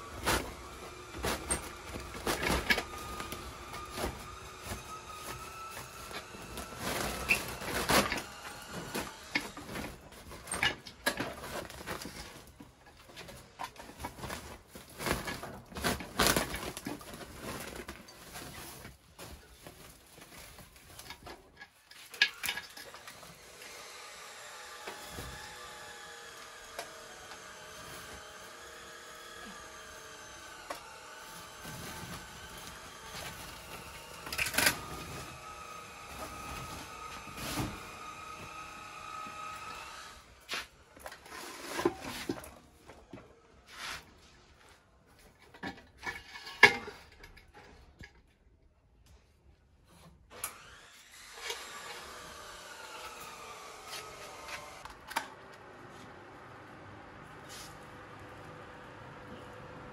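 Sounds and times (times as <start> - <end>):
plastic sack rustling: 0.0 - 10.6, 11.3 - 22.1.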